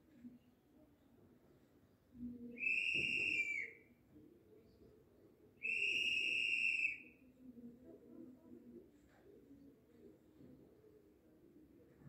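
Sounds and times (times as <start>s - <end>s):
high-pitched whistles: 2.6s - 3.7s.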